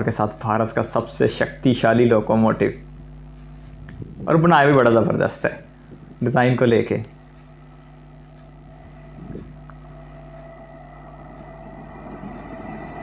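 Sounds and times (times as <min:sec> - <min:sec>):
electric locomotive hum: 0:00.0 - 0:13.0.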